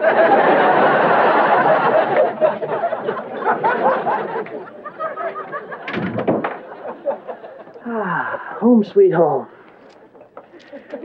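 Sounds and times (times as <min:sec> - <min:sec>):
audience laughter: 0:00.0 - 0:07.9, 0:10.1 - 0:11.0.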